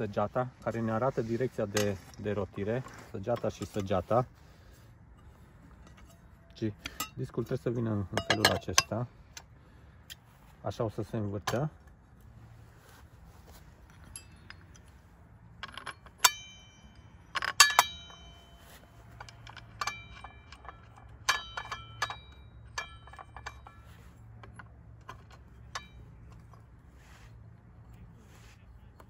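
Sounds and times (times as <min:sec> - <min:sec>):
metal blade clinking: 0:05.8 - 0:09.0, 0:15.6 - 0:26.6.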